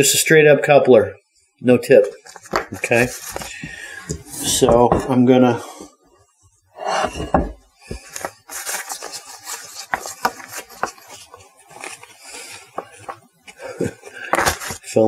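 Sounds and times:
pastry bag rustling: 2.2 - 3.6, 7.1 - 15.0.

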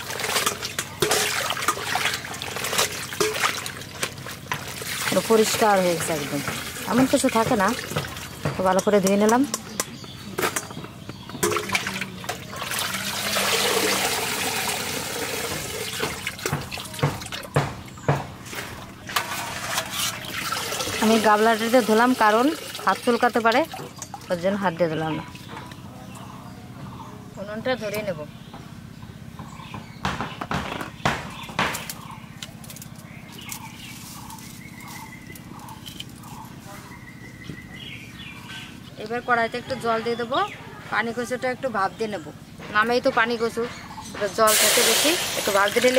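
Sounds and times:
water splashing and streaming: 0.0 - 8.3, 11.4 - 17.6, 18.7 - 24.3
birds chirping: 0.0 - 45.9
colander knocking against metal basin: 5.2 - 12.5, 15.3 - 18.4.

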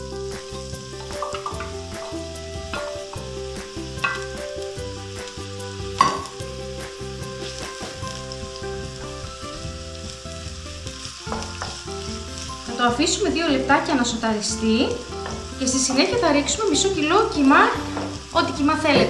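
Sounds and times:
onion sizzling in oil: 0.0 - 19.0
utensil knocking on pan: 1.0 - 3.3, 4.0 - 4.4, 6.0 - 6.4.

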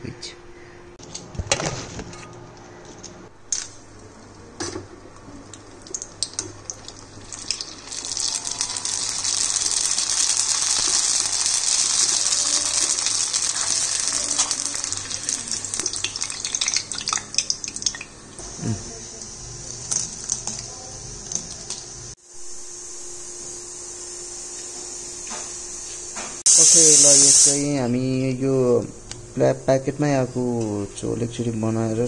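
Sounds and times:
dough sizzling in hot oil: 5.6 - 22.2.

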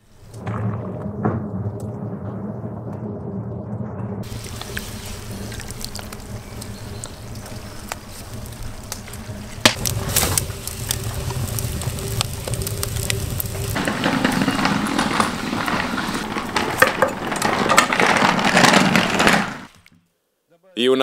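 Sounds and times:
water boiling: 4.2 - 17.5
wood fire crackling and popping: 4.2 - 19.8.

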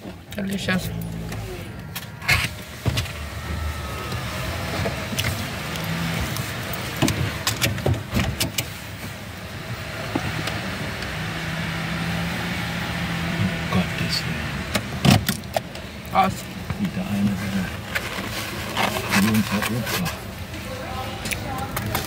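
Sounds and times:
low hum inside a car: 0.0 - 10.6.

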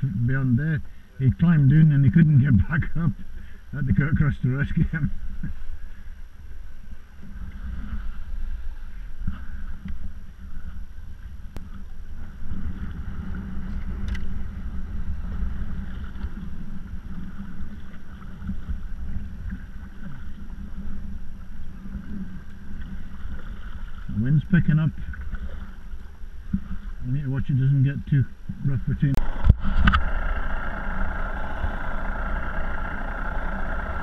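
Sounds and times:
water lapping against kayak hull: 0.0 - 34.0
wind buffeting microphone: 0.0 - 34.0
faint clicks: 14.0 - 14.3.

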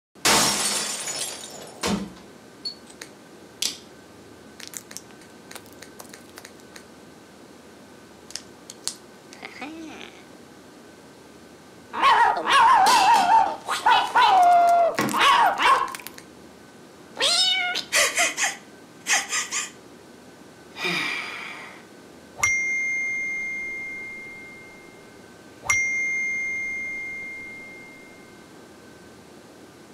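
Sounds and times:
cat yowling and meowing: 12.0 - 16.0, 17.2 - 18.0.

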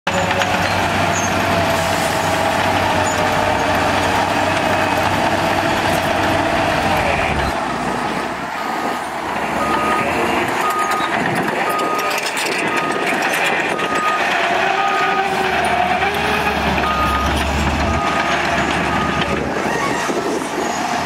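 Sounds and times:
bulldozer diesel engine: 0.1 - 21.0
dump truck engines: 0.1 - 21.0
reversing beeper: 9.6 - 11.1, 16.8 - 19.4.

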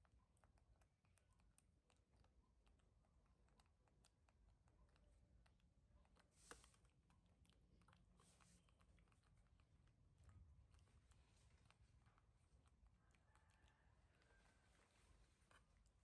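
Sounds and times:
monkeys handling food on plastic plate: 0.1 - 16.0
soft rustle: 6.0 - 16.0.

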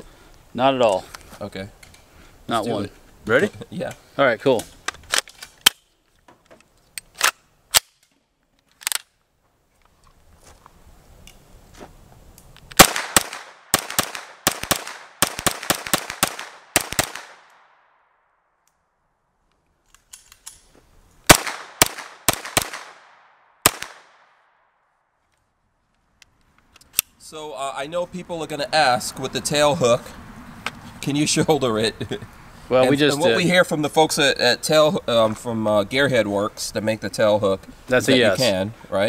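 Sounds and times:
carbine gunshots: 12.8 - 17.9, 21.3 - 24.5.

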